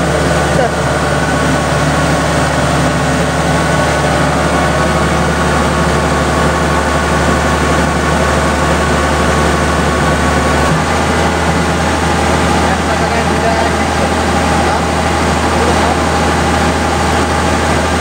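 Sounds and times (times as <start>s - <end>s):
combine harvester running: 0.0s - 18.0s.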